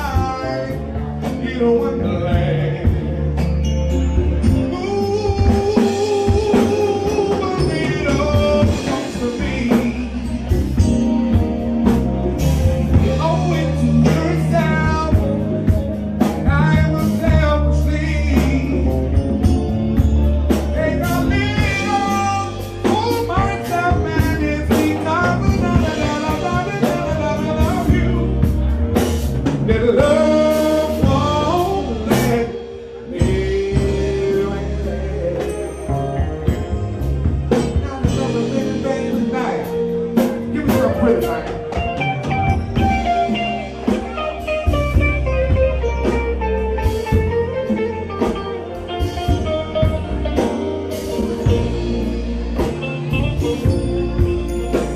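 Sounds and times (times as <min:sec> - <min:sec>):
man singing into microphone: 0:00.0 - 0:03.5, 0:04.4 - 0:11.0, 0:12.9 - 0:19.3, 0:20.6 - 0:28.7, 0:29.5 - 0:36.7, 0:37.5 - 0:41.8
band with drums: 0:00.0 - 0:54.9.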